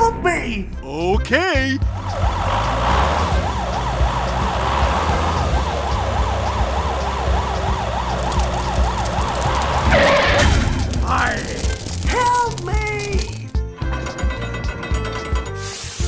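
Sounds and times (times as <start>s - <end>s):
fire engine siren yelp: 1.8s - 10.4s.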